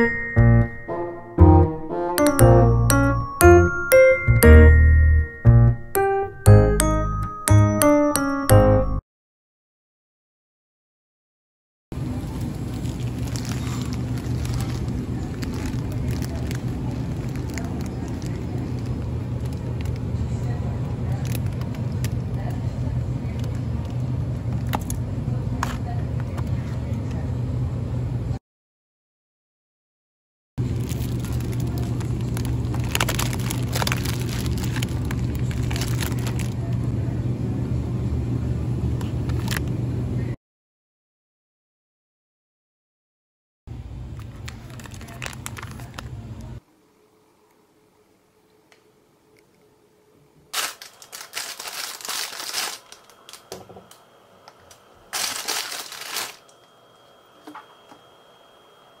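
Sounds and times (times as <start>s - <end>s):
plastic packaging crinkling: 12.0s - 20.1s, 21.1s - 22.4s, 30.6s - 36.8s, 39.3s - 39.6s, 44.2s - 46.2s, 50.6s - 53.5s, 55.1s - 56.5s
refrigerator hum: 12.0s - 28.4s, 30.6s - 40.4s, 43.7s - 46.6s, 50.5s - 59.0s.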